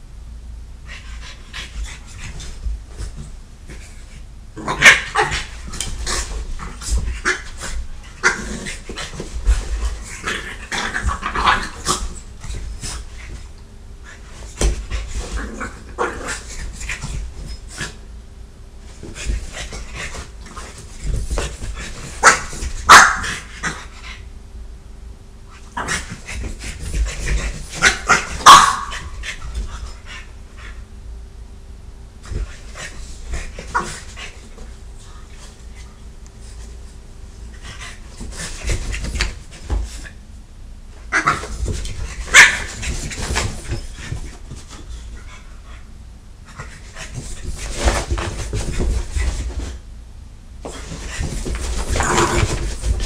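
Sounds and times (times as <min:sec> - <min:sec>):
dogs barking: 0:22.2 - 0:23.8, 0:27.8 - 0:29.4, 0:42.2 - 0:42.8.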